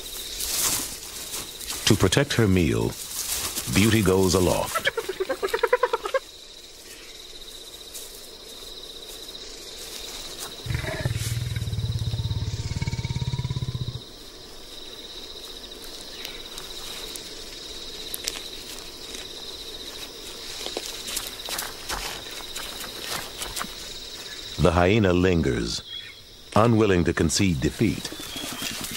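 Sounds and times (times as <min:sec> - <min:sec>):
leopard growling: 0:10.6 - 0:14.1.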